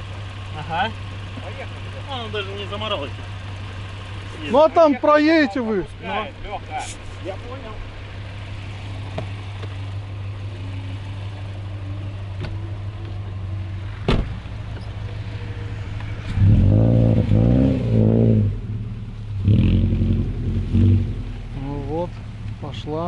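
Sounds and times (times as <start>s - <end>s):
car engine revving in mud: 6.8s - 23.0s.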